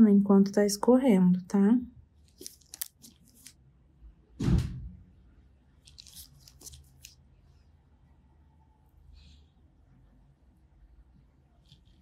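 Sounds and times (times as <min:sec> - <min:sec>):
gloved hands rustling: 0:02.3 - 0:03.6, 0:05.8 - 0:07.2.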